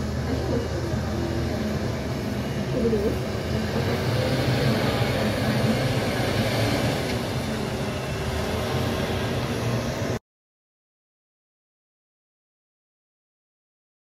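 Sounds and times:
diesel truck engine running: 0:00.0 - 0:10.2.

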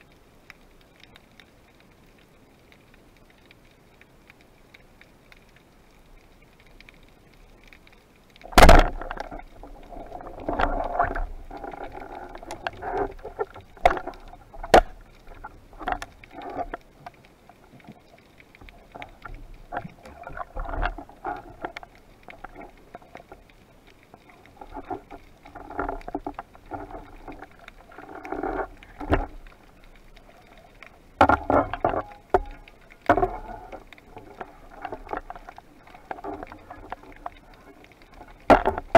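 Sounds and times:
clicks and knocks underwater: 0:00.0 - 0:38.9
muffled water noise: 0:00.0 - 0:38.9
speargun firing underwater: 0:08.5 - 0:09.2.

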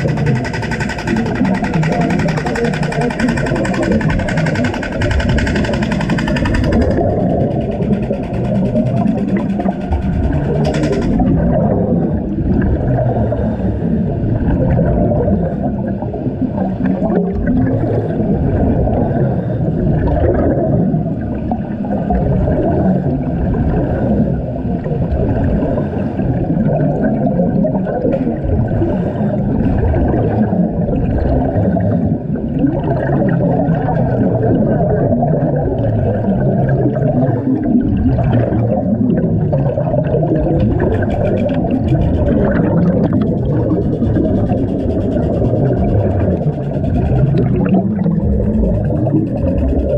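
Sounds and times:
air bubbles gurgling underwater: 0:00.0 - 0:49.9.

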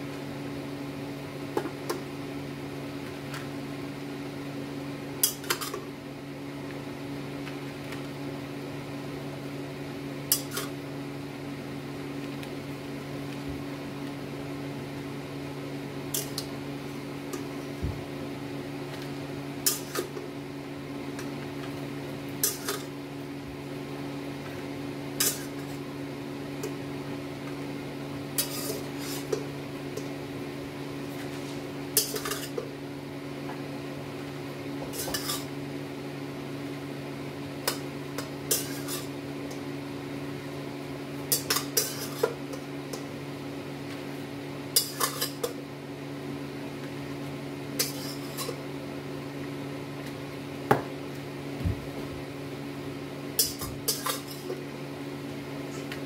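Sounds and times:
metal spoon clinking and scraping: 0:28.4 - 0:29.4, 0:32.0 - 0:32.6, 0:34.9 - 0:35.5, 0:38.5 - 0:39.1, 0:41.3 - 0:42.3, 0:44.8 - 0:45.5, 0:47.8 - 0:48.6, 0:53.4 - 0:54.5.

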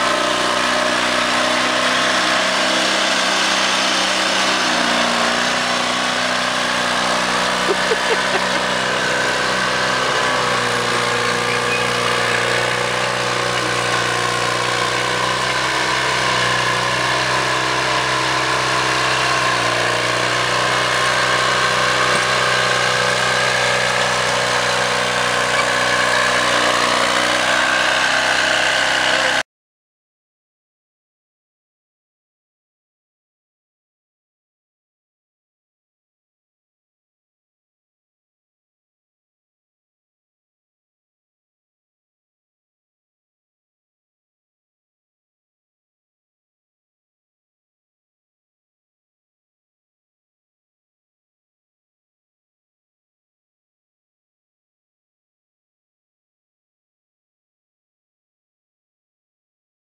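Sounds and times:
bulldozer engine running: 0:00.0 - 0:29.4.

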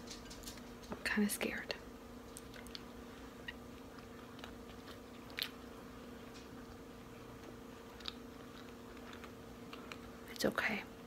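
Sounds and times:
faint hum: 0:00.0 - 0:11.0
person chewing: 0:02.3 - 0:10.2.

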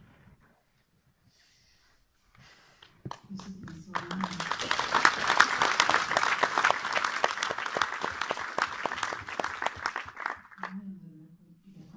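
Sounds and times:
audience applauding: 0:03.1 - 0:10.7.

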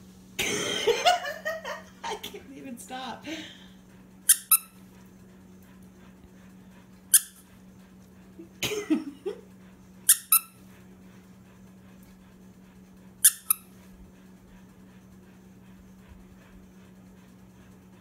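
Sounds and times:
squeaky dog toy squeaking: 0:04.3 - 0:04.8, 0:07.1 - 0:07.4, 0:10.1 - 0:10.6, 0:13.2 - 0:13.6.

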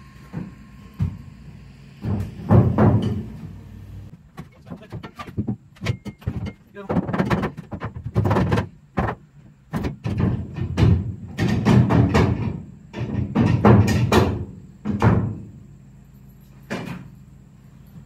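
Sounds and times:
metal bar clanking on truck bed: 0:02.1 - 0:03.5.

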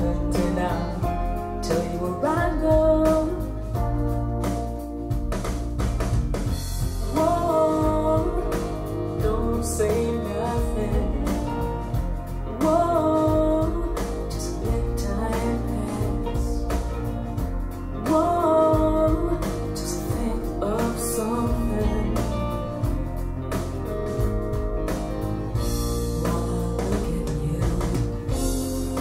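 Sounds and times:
woman singing: 0:00.0 - 0:04.2, 0:07.0 - 0:17.1, 0:17.9 - 0:23.0, 0:26.1 - 0:29.0
rock band guitar bass drums: 0:00.0 - 0:29.0.

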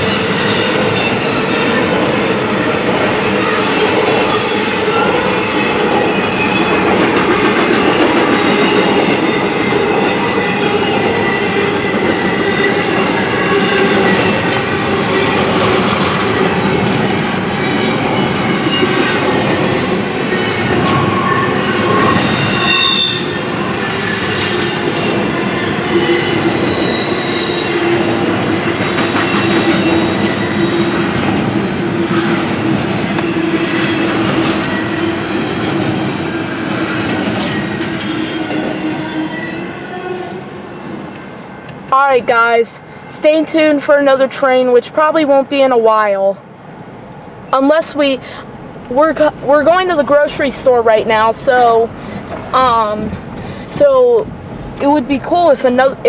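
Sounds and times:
train wheels squealing: 0:00.0 - 0:02.0, 0:10.0 - 0:16.6, 0:21.1 - 0:28.0, 0:47.1 - 0:47.6
train wheels rumbling on rail: 0:00.0 - 0:56.0.

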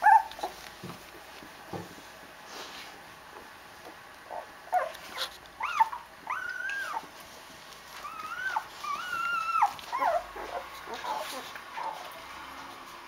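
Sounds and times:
puppies whimpering: 0:00.0 - 0:00.6, 0:04.3 - 0:07.1, 0:07.9 - 0:12.2.

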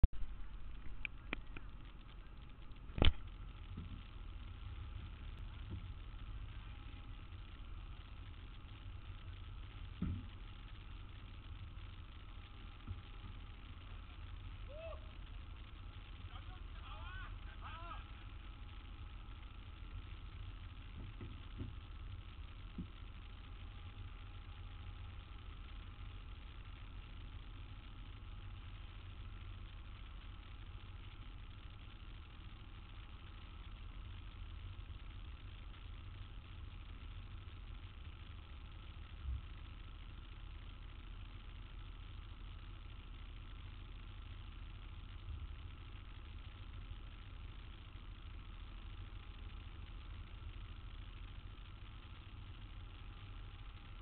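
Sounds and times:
city traffic rumble: 0:00.0 - 0:31.8.

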